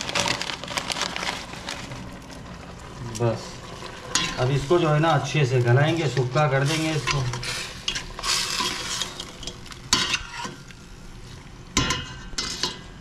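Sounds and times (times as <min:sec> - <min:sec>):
food sizzling in a pot: 0:01.4 - 0:13.0
spoon stirring and scraping: 0:04.1 - 0:04.8, 0:06.0 - 0:10.7, 0:11.8 - 0:13.0.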